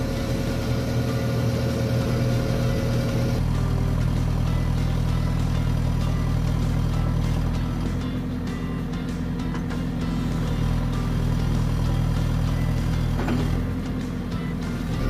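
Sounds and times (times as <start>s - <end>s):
diesel engine running: 0.0s - 15.0s.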